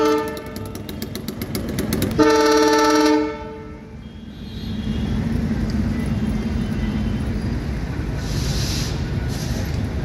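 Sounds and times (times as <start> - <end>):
horn sounding: 0.0 - 1.2, 2.0 - 5.1
train rumbling: 0.0 - 4.0, 4.6 - 10.0.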